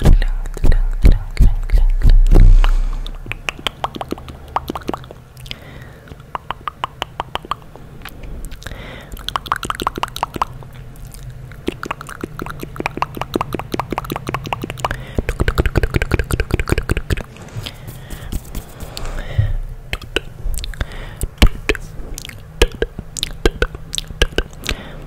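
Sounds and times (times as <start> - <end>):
low hum: 0.0 - 5.4, 14.6 - 25.0
wet tongue and lip clicks: 3.0 - 17.2, 19.9 - 25.0.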